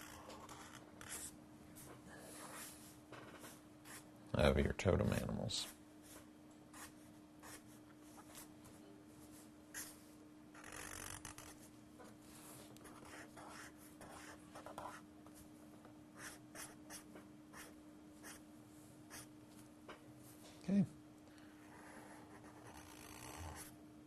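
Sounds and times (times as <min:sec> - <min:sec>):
pen drawing on paper: 0:10.6 - 0:11.6, 0:21.8 - 0:23.7.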